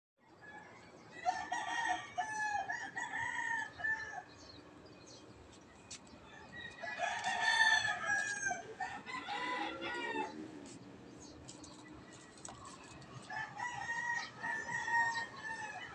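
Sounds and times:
rooster crowing: 0.4 - 4.3, 6.3 - 10.4, 13.3 - 15.9.

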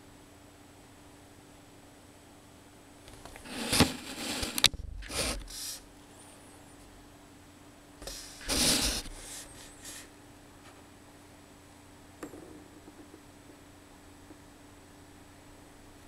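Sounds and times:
handling rubbing and scraping: 3.1 - 5.9, 8.0 - 10.8.

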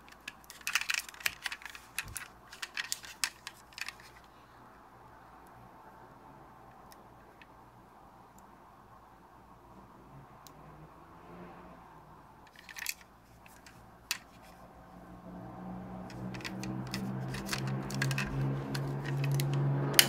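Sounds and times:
metal toy clicks and taps: 0.0 - 4.2, 16.0 - 20.0.

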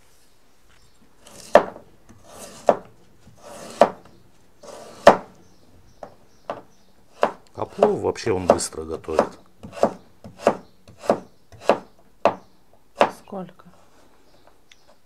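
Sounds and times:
knife cutting on cutting board: 1.2 - 4.0, 4.6 - 5.3, 7.1 - 11.9.

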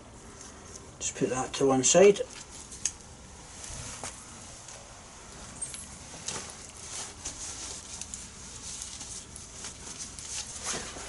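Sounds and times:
tools clicking and rustling: 5.4 - 6.8.

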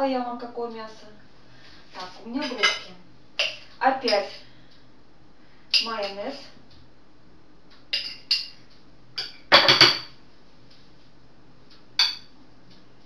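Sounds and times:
spoon clinking against glass jar: 8.0 - 8.6, 12.0 - 12.3.

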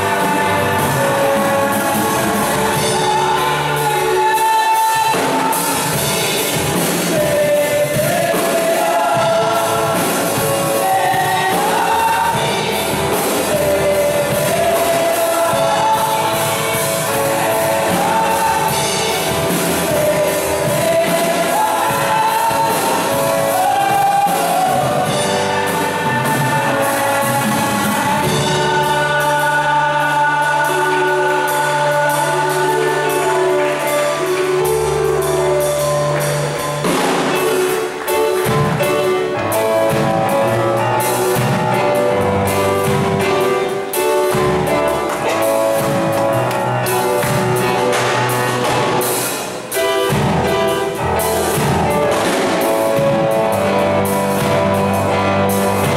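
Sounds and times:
women's choir singing: 0.0 - 34.3
instrumental accompaniment: 0.0 - 55.9
steady beat: 32.2 - 55.9.

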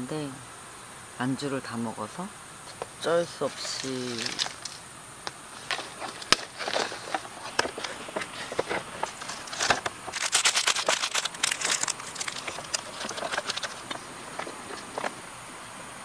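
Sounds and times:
plastic packaging crinkling: 3.4 - 4.8, 5.5 - 15.2.

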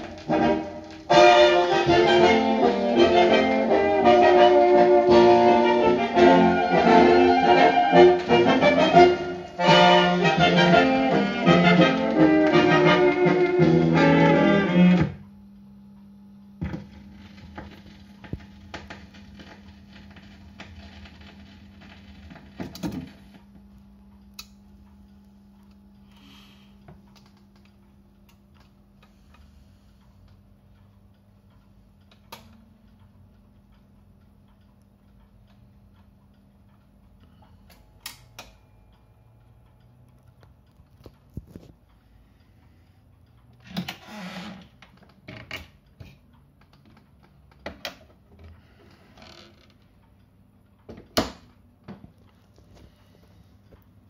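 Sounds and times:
music from a record: 0.0 - 15.0
steady low hum: 0.0 - 43.6.

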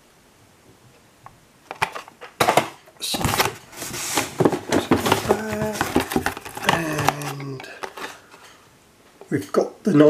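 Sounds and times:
packaging rustling and crinkling: 1.8 - 8.6.

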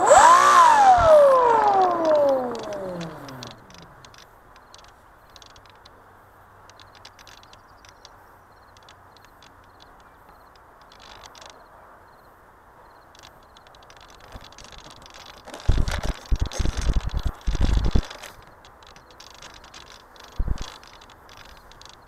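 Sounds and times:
rumbling buffeting: 0.0 - 4.2
microphone hiss with faint ticks: 1.4 - 22.0.

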